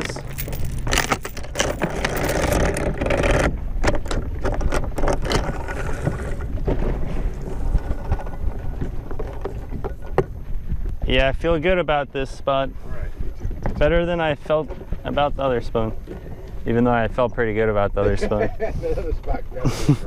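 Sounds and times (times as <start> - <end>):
anchor chain rattling: 0.0 - 6.6, 7.4 - 10.3.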